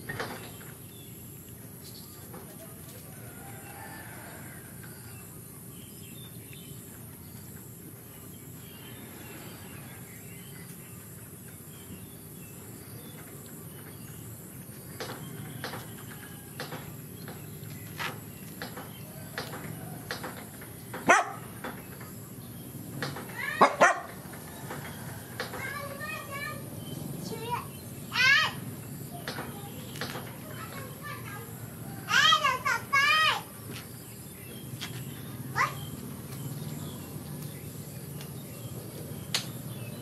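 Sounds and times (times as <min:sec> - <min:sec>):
dog barking: 0:21.0 - 0:21.5, 0:23.6 - 0:24.2.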